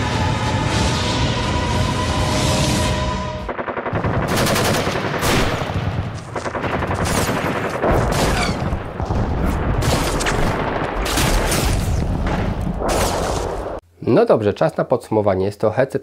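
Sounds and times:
rapid automatic gunfire: 3.5s - 11.5s.

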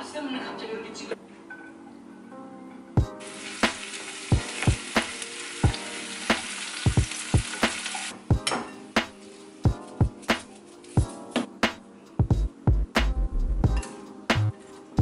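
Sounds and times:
background music with drum beat: 3.0s - 15.0s
vegetables sizzling in hot oil: 3.2s - 8.2s.

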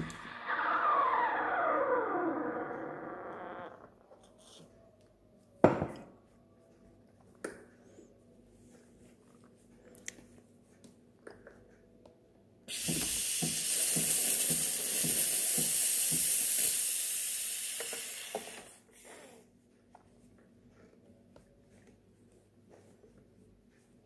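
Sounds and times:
low pulsing sputters: 0.0s - 3.8s
steam wand hissing: 12.7s - 19.2s.

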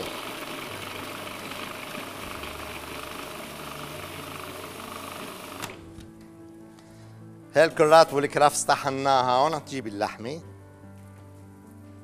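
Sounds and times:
blender grinding vegetables: 0.0s - 5.8s.

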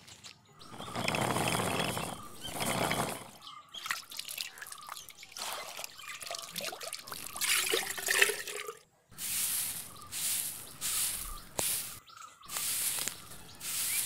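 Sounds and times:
water pouring into metal vessel: 0.8s - 8.8s.

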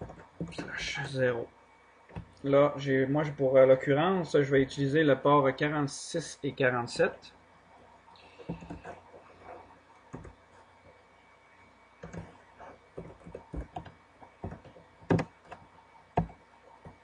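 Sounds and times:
computer keyboard typing: 0.0s - 0.7s, 8.5s - 9.0s, 10.1s - 10.4s, 12.0s - 12.4s, 13.0s - 15.6s, 16.2s - 17.0s.

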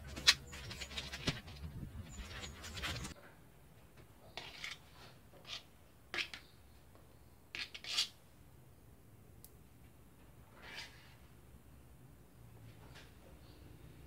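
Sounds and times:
ink scraping and smearing: 0.0s - 3.2s, 4.3s - 6.5s, 7.5s - 8.2s.

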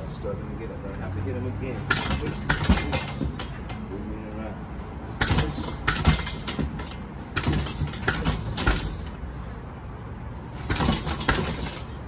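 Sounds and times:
sharp knocks: 5.2s - 9.0s, 10.6s - 11.9s.

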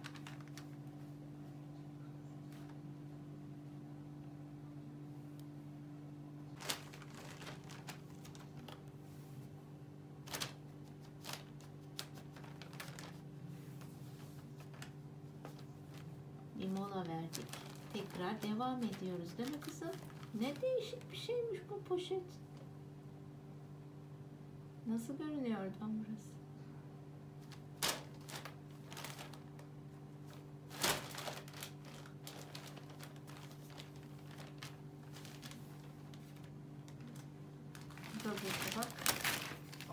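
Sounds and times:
plastic bag crinkling: 0.0s - 1.2s, 6.5s - 9.0s, 10.2s - 21.5s, 27.4s - 39.9s
steady low hum: 0.0s - 39.9s.

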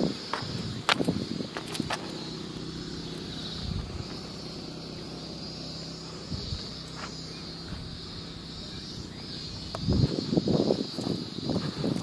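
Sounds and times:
insect drone: 0.0s - 12.0s
soft footsteps: 0.2s - 2.3s, 5.8s - 8.0s
low steady hum: 2.0s - 10.1s.

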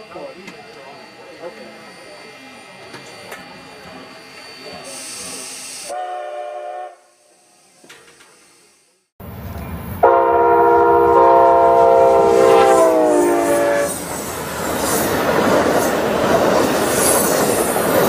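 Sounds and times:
train rumble and wheel clatter: 0.0s - 6.0s, 9.2s - 18.0s
train air horn: 5.9s - 7.2s, 10.0s - 14.0s.

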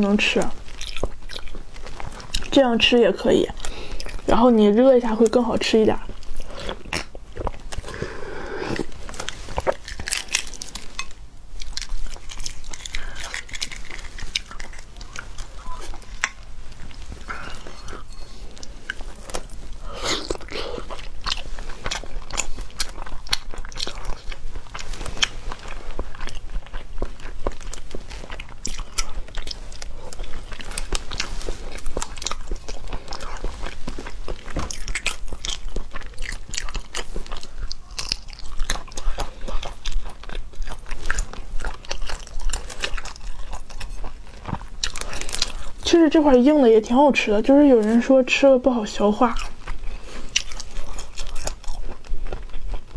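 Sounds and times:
biting and wet chewing: 0.0s - 52.9s.

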